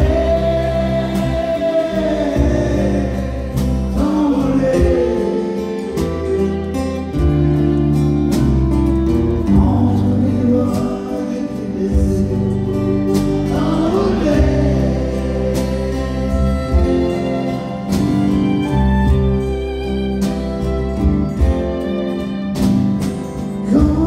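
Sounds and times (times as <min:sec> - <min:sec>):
man singing into microphone: 0:00.0 - 0:06.4, 0:09.5 - 0:17.5, 0:23.6 - 0:24.0
voices singing along: 0:00.0 - 0:06.7, 0:09.6 - 0:17.5
amplified instrumental accompaniment: 0:00.0 - 0:24.0.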